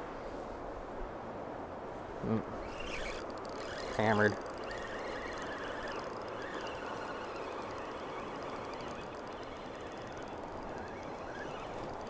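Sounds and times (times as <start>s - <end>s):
spinning reel cranking: 2.6s - 12.0s.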